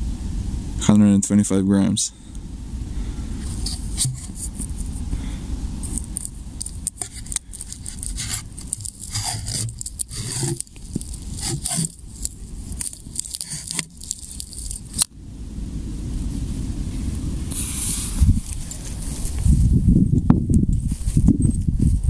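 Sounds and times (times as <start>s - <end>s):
paper scraping inside cardboard tube: 3.4s - 5.0s, 5.8s - 15.1s, 17.5s - 19.6s
handling rustle: 3.4s - 5.1s, 5.7s - 15.1s, 17.5s - 19.7s.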